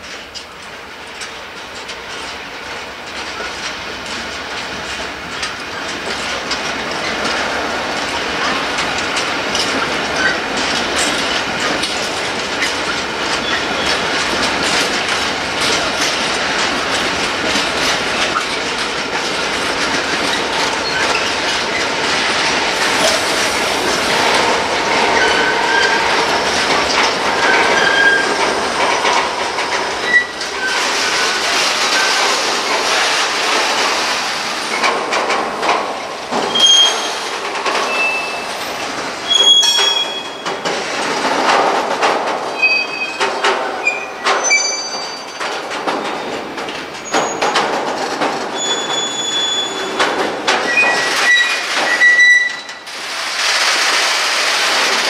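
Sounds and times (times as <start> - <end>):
train wheels clacking over rail joints: 0.0 - 55.0
high wheel squeals: 27.4 - 28.4, 36.5 - 38.6, 39.2 - 40.4, 43.8 - 45.4, 48.6 - 50.1, 50.7 - 52.8.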